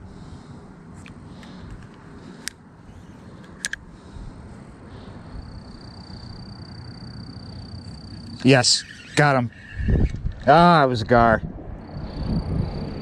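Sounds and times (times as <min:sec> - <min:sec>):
low outdoor rumble: 0:00.0 - 0:13.0
sharp clicks: 0:03.4 - 0:03.8.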